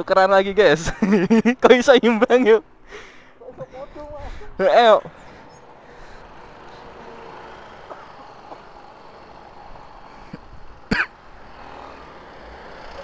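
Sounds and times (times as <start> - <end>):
road traffic: 0.0 - 13.0
scooters idling: 3.1 - 13.0.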